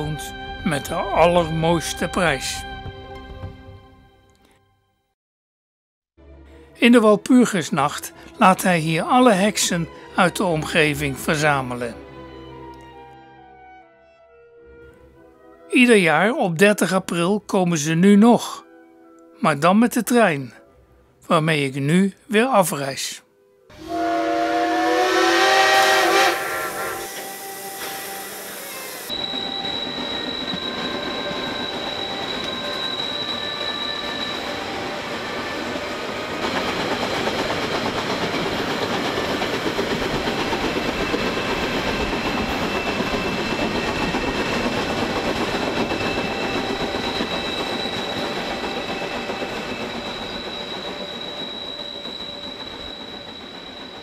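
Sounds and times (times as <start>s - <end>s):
train rolling on track: 0.0s - 3.9s, 7.2s - 13.0s, 23.7s - 54.0s
steam train whistle: 23.7s - 35.9s
thin high whine: 25.8s - 35.9s.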